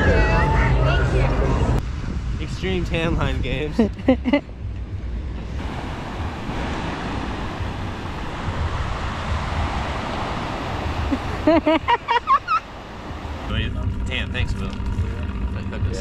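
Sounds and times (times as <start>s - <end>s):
ocean surf washing in: 5.4s - 13.7s.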